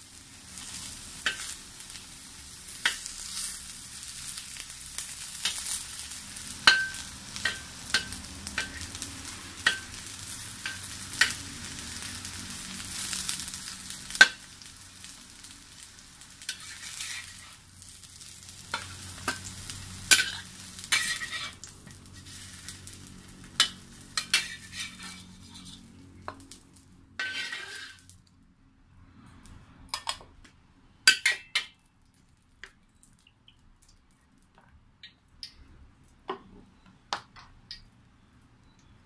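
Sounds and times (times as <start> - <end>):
hot oil sizzling: 0.0 - 28.3
metal spatula scraping a wok: 2.7 - 4.4, 16.4 - 17.6, 18.7 - 22.9, 23.5 - 26.4, 27.2 - 28.1.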